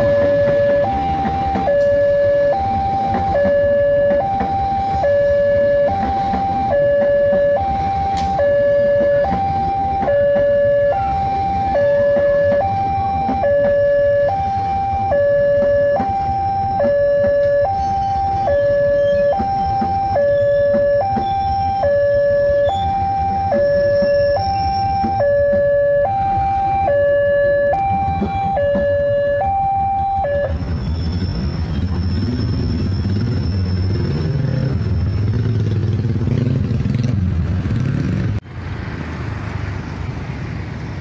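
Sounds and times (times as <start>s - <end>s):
level crossing alarm alternating tones: 0.0s - 30.8s
train coaches rumbling past: 0.0s - 41.0s.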